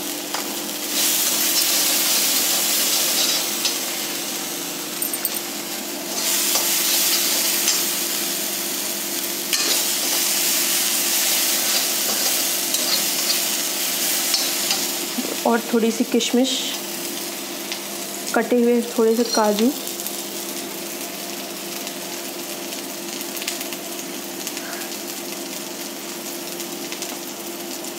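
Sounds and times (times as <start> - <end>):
vegetables sizzling in oil: 0.0 - 27.9
metal spoon scraping a pan: 1.5 - 3.8, 9.5 - 10.4, 11.5 - 13.6, 14.2 - 15.0.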